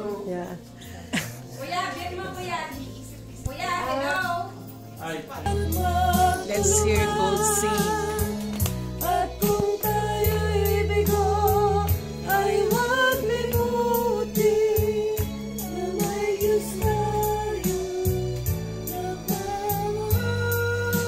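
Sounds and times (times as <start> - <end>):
person singing a held melody: 5.5 - 8.4, 9.0 - 21.0
regular beat: 5.5 - 10.4
bass notes: 5.5 - 21.0.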